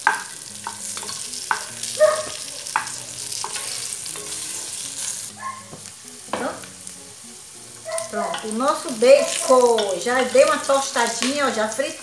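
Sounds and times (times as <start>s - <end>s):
spoon knocking and scraping pot: 0.0s - 4.4s, 9.7s - 10.6s
bacon sizzling in a pot: 0.0s - 12.0s.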